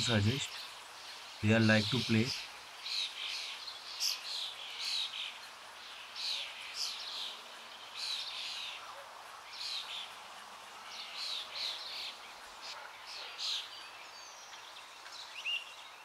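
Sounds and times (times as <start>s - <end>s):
birds chattering harshly: 0.0s - 5.4s.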